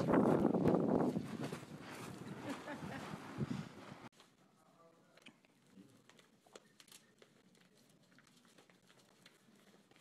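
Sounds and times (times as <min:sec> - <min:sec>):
paper rustling: 0:05.2 - 0:10.0.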